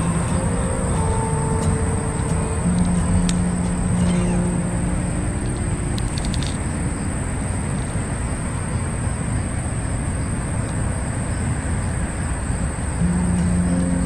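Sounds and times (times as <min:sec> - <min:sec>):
faint steady high tone: 0:00.0 - 0:09.3, 0:13.0 - 0:14.0
low rumble: 0:00.0 - 0:09.3.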